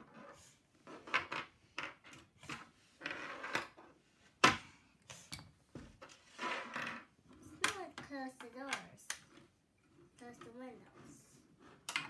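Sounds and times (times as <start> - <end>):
plastic toys clicking on wooden table: 0.9 - 3.8, 5.3 - 9.5, 11.7 - 12.0
toys scraping on table: 6.1 - 7.1.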